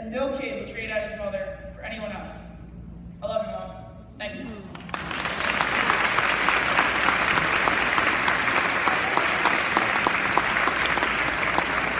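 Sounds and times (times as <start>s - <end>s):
audience clapping: 4.7s - 11.9s.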